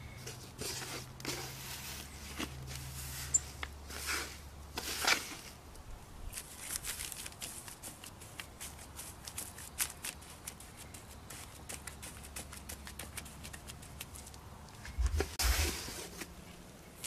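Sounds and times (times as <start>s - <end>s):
hands patting wet cement mix: 6.7s - 16.3s.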